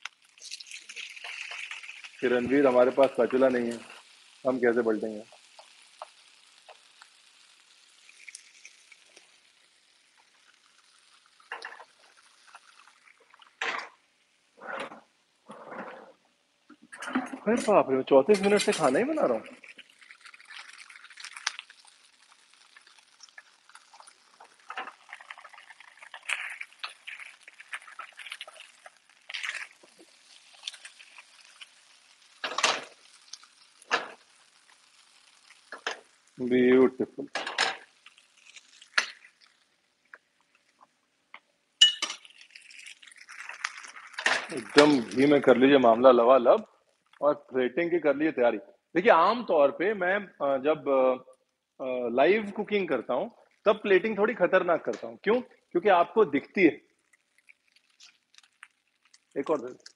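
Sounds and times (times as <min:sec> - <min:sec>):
faint sizzle in a grill pan: 0:00.0 - 0:15.5, 0:16.5 - 0:48.4, 0:49.0 - 0:59.9
faint crackling of frying: 0:00.0 - 0:59.9
metal spatula scraping grill pan: 0:14.6 - 0:16.2, 0:16.9 - 0:19.8, 0:22.6 - 0:36.2.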